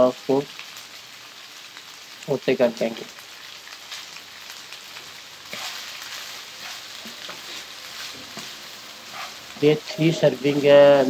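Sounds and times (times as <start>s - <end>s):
food sizzling in a wok: 0.0s - 11.0s.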